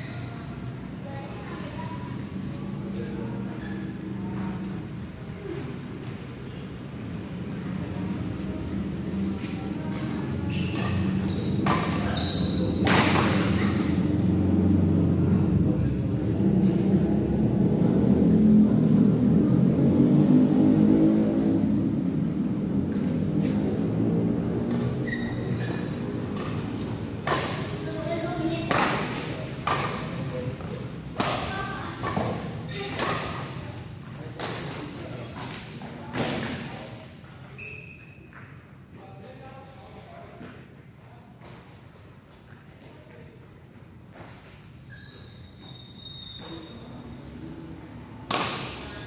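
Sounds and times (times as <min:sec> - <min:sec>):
shoe squeak: 0:00.0 - 0:00.4, 0:03.5 - 0:04.1, 0:06.4 - 0:07.6, 0:10.0 - 0:13.9, 0:24.7 - 0:28.7, 0:31.5 - 0:33.7, 0:37.4 - 0:38.7, 0:43.7 - 0:47.4
low hall rumble: 0:07.4 - 0:32.7
rackets striking shuttlecock: 0:10.7 - 0:14.0, 0:26.2 - 0:33.6, 0:34.3 - 0:34.9, 0:48.3 - 0:49.0.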